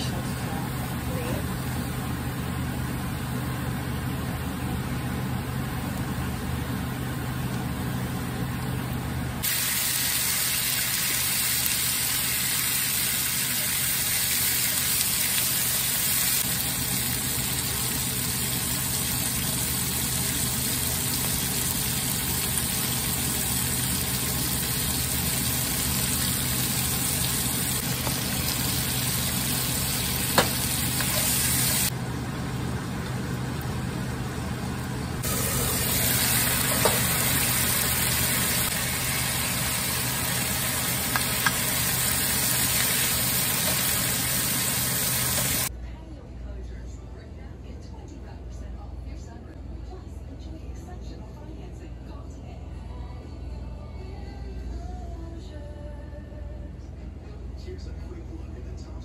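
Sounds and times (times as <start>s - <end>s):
food sizzling in a frying pan: 9.4s - 31.9s, 35.2s - 45.7s.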